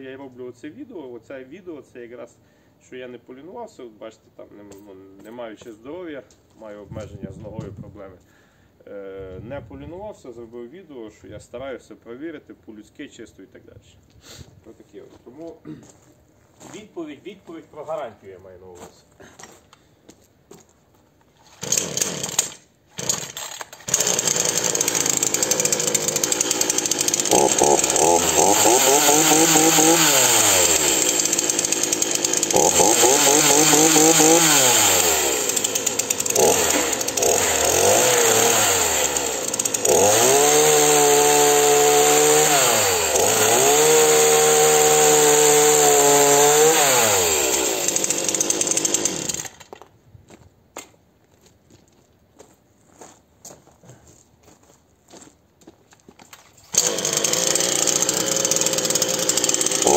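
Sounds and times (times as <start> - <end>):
chainsaw engine revving: 21.5 - 49.7, 56.7 - 59.9.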